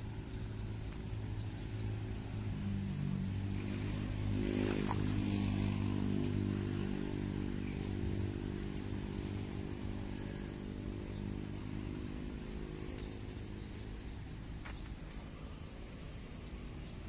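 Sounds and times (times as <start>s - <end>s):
motor engine humming: 0.0s - 17.0s.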